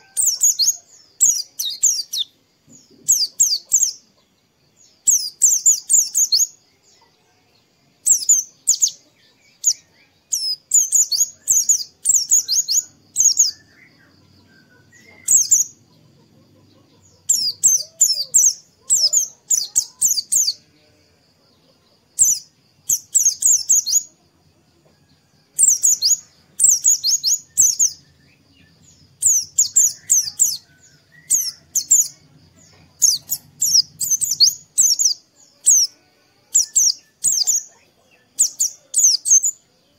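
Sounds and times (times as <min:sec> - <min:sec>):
bird chirping rapidly: 0:00.0 - 0:02.4, 0:03.0 - 0:04.1, 0:05.0 - 0:06.6, 0:08.0 - 0:20.6, 0:22.2 - 0:24.1, 0:25.6 - 0:35.9, 0:36.6 - 0:39.6.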